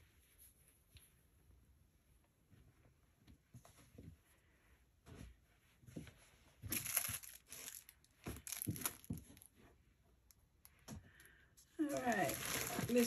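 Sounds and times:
cloth rustling: 0:02.4 - 0:10.0, 0:11.8 - 0:13.0
plastic wrapping crinkling: 0:06.7 - 0:09.6, 0:11.8 - 0:13.0.

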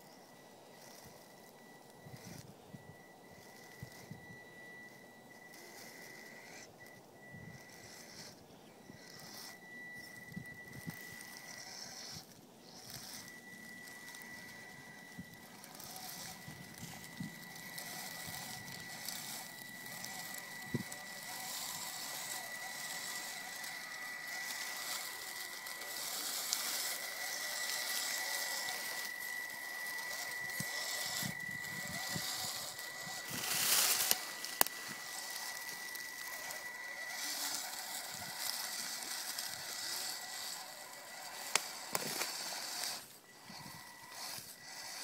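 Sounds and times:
electric motor whine: 0:00.0 - 0:45.0
tyres crunching dry leaves: 0:10.9 - 0:45.0
sharp clicks: 0:41.2 - 0:43.1.

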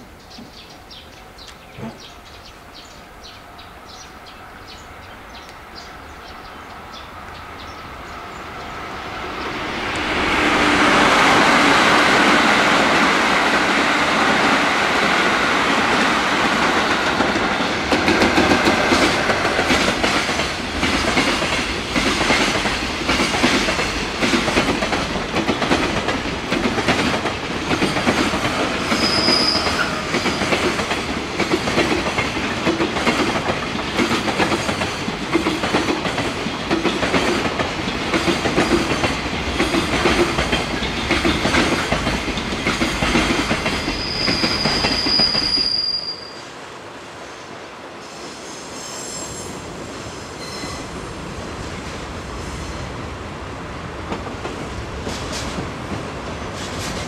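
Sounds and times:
train wheels clattering over rails: 0:08.7 - 0:45.8, 0:54.0 - 0:57.0
high squeal: 0:28.8 - 0:30.5, 0:43.8 - 0:46.5, 0:50.4 - 0:50.9.

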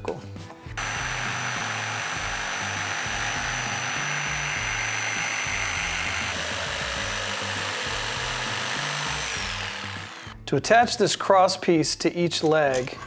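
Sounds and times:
blade rasping through wood: 0:00.8 - 0:10.4
jigsaw motor whine: 0:00.8 - 0:10.4.

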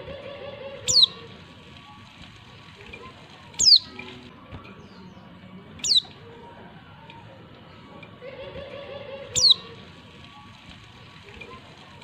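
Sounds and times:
faint background bird chatter: 0:00.0 - 0:12.0
bird high downward calls: 0:00.8 - 0:01.3, 0:03.6 - 0:04.0, 0:05.8 - 0:06.2, 0:09.2 - 0:09.8.

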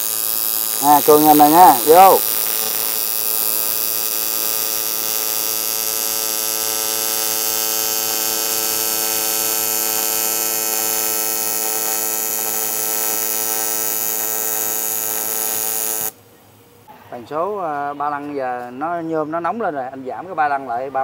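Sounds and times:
welding arc buzzing: 0:00.0 - 0:16.2.

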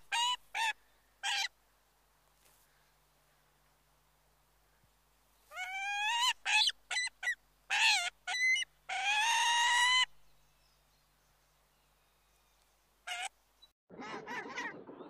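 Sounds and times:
eagle calling: 0:05.5 - 0:10.1, 0:13.1 - 0:13.3.

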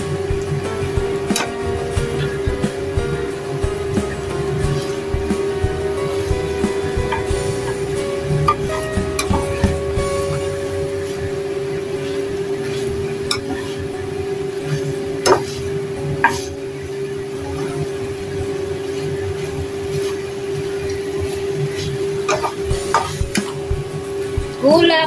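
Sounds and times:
spatula scraping wok: 0:00.0 - 0:24.6
food frying in wok: 0:00.0 - 0:25.0
steady hum: 0:00.0 - 0:25.0.

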